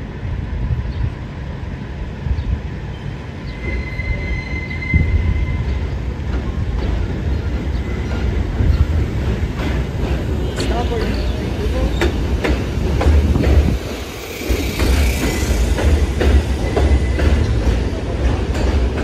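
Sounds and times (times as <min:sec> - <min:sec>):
train wheels rumbling on track: 0:00.0 - 0:19.0
high wheel squeal: 0:03.5 - 0:05.9, 0:14.1 - 0:17.6.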